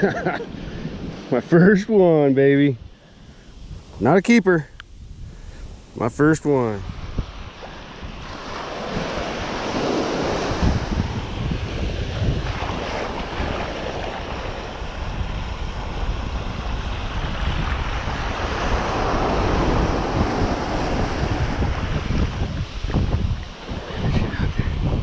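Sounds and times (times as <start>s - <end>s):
wind buffeting microphone: 0.0s - 25.0s
surf washing up a beach: 5.5s - 25.0s.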